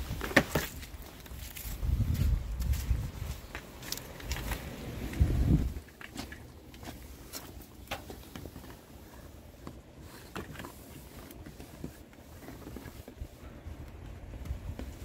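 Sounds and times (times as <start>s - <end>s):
low steady rumble: 1.5s - 7.3s.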